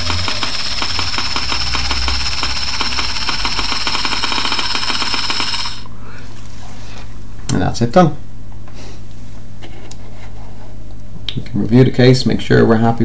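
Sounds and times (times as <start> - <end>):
scanner high whine with ticking: 0.0 - 6.0.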